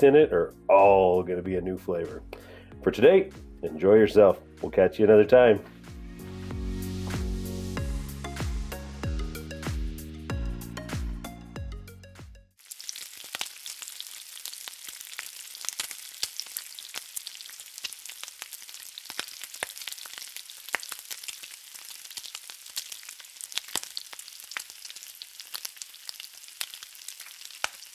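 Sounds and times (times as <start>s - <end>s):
bacon sizzling in a pan: 12.6s - 27.9s
fat popping and crackling: 12.6s - 27.9s.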